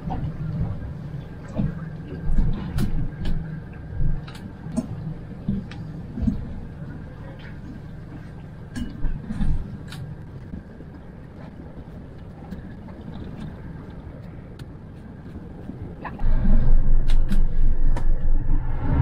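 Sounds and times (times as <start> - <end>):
boat engine rumbling: 0.0 - 19.0
loud uneven low rumble: 0.0 - 19.0.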